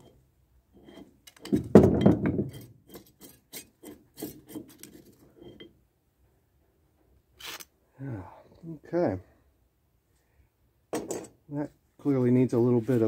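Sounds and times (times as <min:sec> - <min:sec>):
rusty vise scraping metal on metal: 0:00.0 - 0:01.6, 0:02.4 - 0:05.8.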